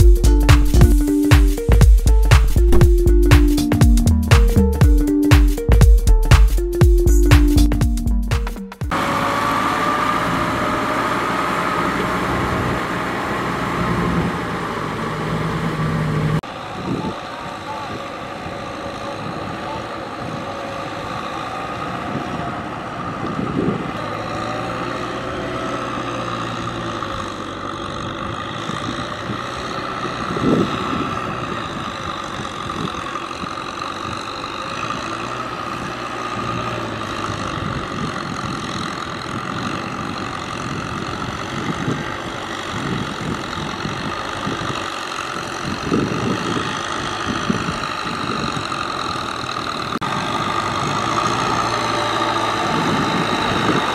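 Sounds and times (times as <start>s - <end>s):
diesel tractor engine running: 0.0s - 53.9s
brief thumps: 2.3s - 3.5s.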